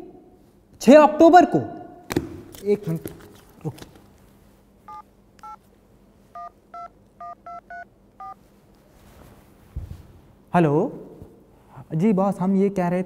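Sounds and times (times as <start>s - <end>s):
touch-tone keypad beeps: 4.9s - 5.6s, 6.4s - 8.4s.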